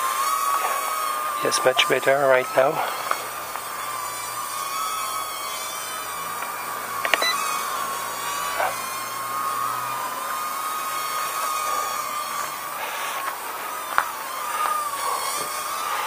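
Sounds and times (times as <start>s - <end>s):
quadcopter motors whining: 0.0s - 16.0s
sharp click: 7.0s - 7.4s.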